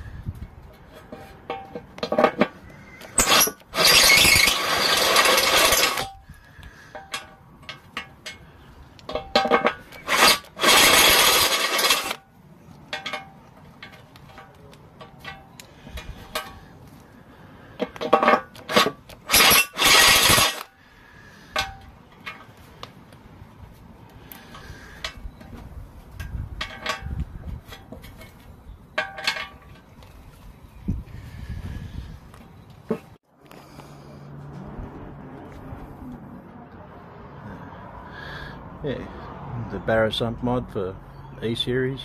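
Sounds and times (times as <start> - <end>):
cordless drill cutting into metal: 3.1 - 6.1, 10.0 - 12.2, 18.7 - 20.7.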